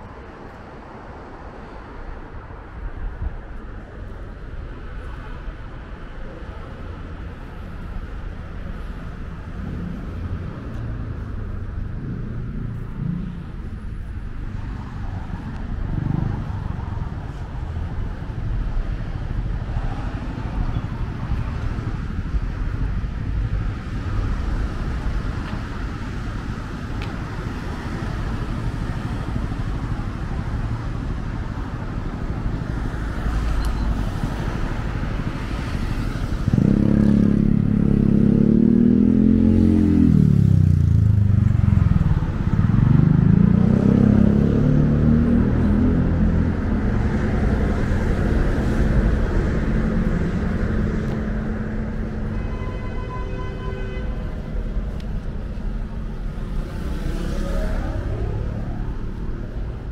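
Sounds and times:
traffic rumble: 0.0s - 59.9s
vehicle engine accelerating past: 42.6s - 46.7s, 56.4s - 58.7s.

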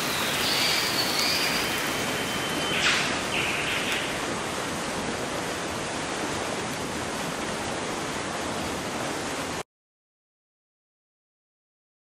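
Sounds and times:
heavy rain on forest canopy: 0.0s - 9.6s.

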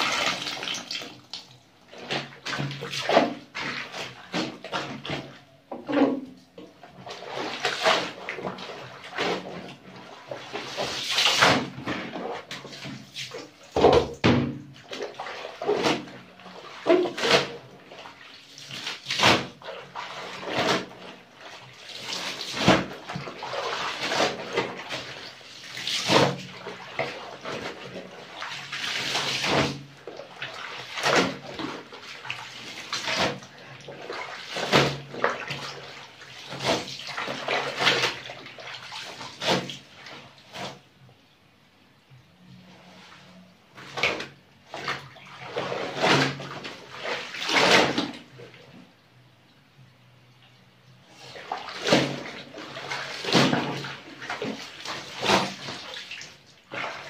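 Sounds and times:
soapy water sloshing in basin: 0.0s - 41.2s, 42.4s - 49.0s, 50.4s - 57.0s.

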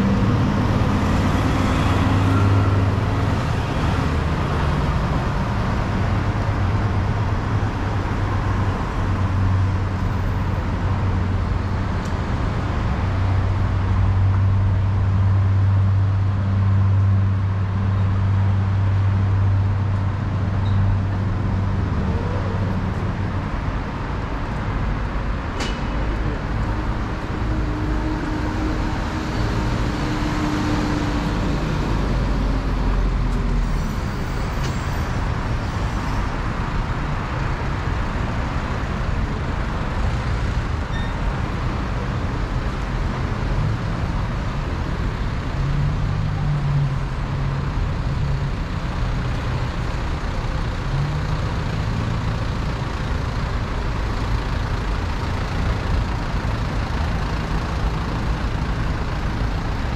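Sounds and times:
passing vehicle engine: 0.0s - 40.8s
city street traffic: 0.0s - 59.9s.

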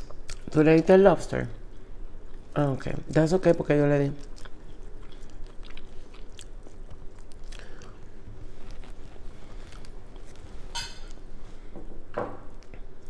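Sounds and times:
chewing: 4.2s - 11.2s.

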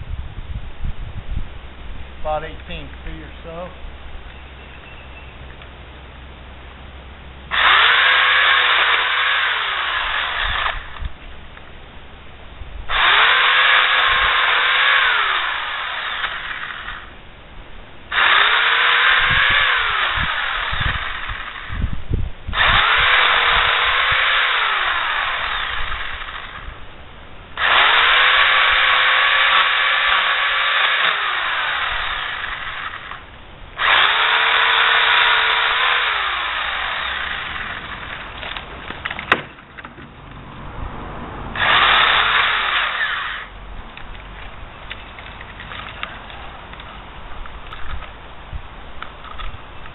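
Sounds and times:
electric pole saw cutting branches: 7.5s - 11.2s, 12.9s - 17.1s, 18.1s - 26.8s, 27.6s - 39.2s, 41.6s - 43.6s.

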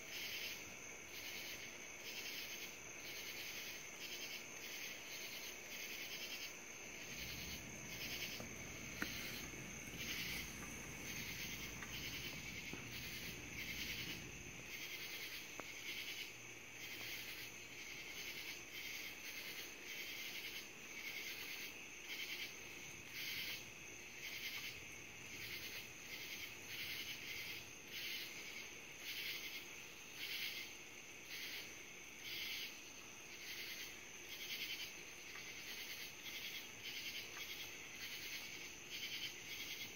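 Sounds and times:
night insects pulsing: 0.0s - 39.9s
distant thunder rumble: 7.0s - 14.7s.

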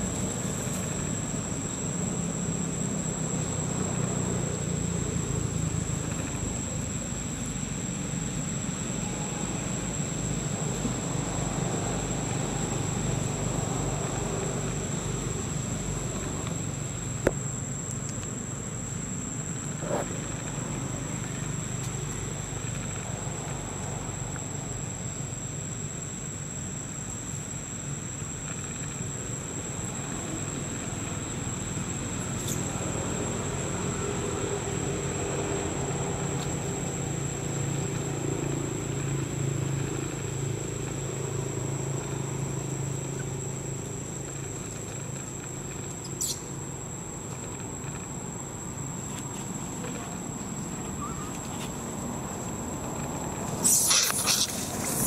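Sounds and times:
high-pitched insect drone: 0.1s - 17.8s, 46.0s - 55.0s.

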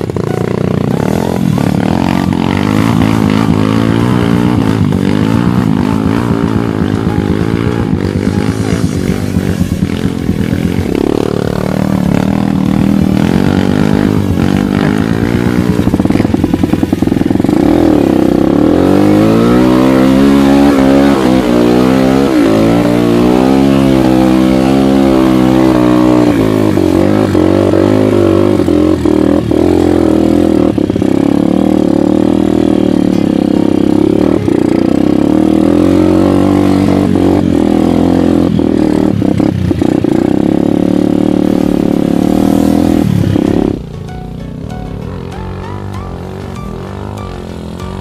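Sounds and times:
dirt bike engine revving: 0.0s - 48.0s.

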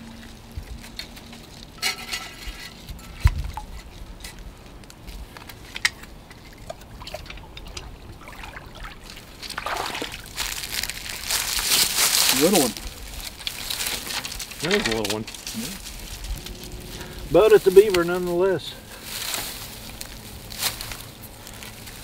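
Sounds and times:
water splashing and trickling: 5.7s - 20.0s.

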